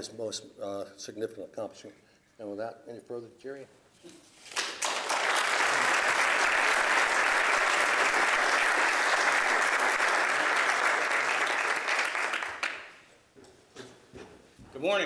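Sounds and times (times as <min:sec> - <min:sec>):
audience applauding: 0:04.5 - 0:13.1.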